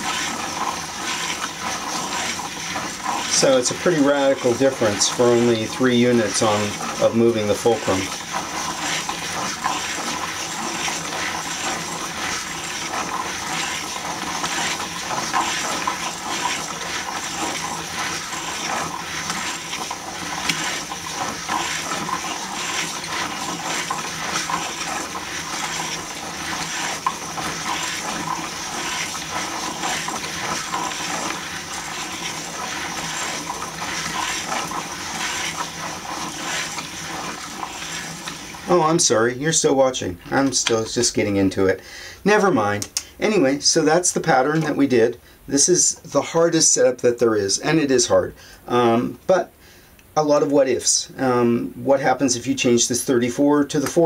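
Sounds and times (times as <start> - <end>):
wooden gears rattling whir: 0.0 - 39.0.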